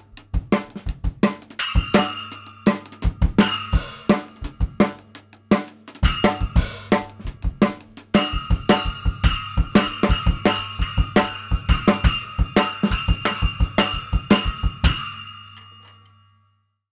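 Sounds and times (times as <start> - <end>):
bass drum and snare: 0.0 - 15.1
drum kit groove: 0.0 - 15.9
splash cymbal hits: 8.2 - 16.0.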